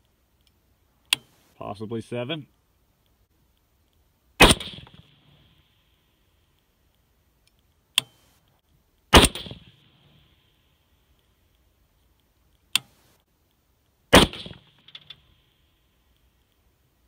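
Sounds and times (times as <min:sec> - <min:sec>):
rifle shots with echo: 0:04.4 - 0:05.1, 0:09.1 - 0:09.8, 0:14.1 - 0:14.8.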